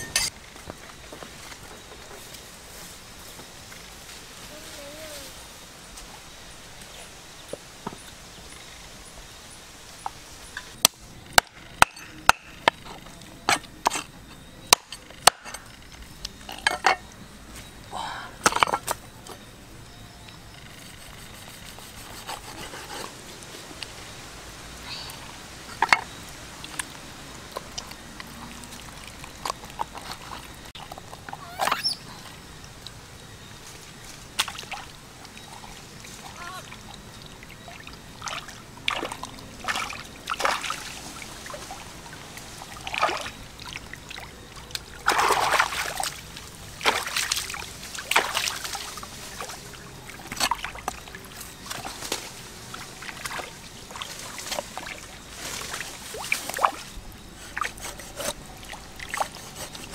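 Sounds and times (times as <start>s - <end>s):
wet squelches and splashes: 34.3s - 59.9s.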